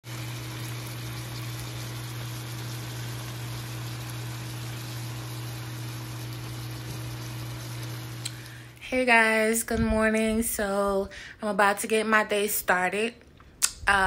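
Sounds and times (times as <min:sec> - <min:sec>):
sauce bubbling in a frying pan: 0:00.0 - 0:08.7.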